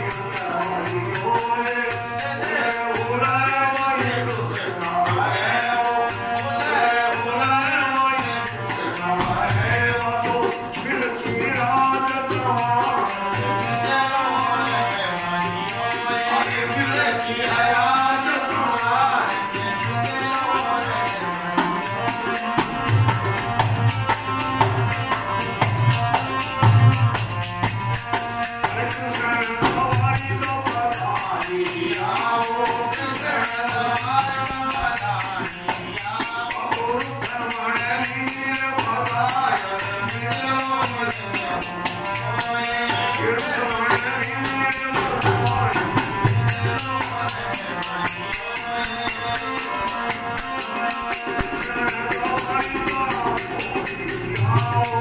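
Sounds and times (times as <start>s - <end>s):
hand cymbals jingling: 0.0s - 55.0s
harmonium: 0.0s - 55.0s
person singing devotional song: 0.0s - 55.0s
hand drum beating: 8.7s - 13.6s, 21.5s - 37.2s, 40.1s - 55.0s.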